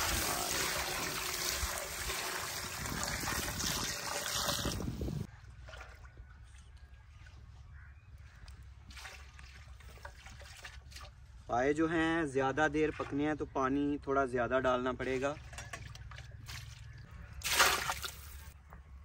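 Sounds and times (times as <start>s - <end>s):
water pouring into pot: 0.0s - 4.9s.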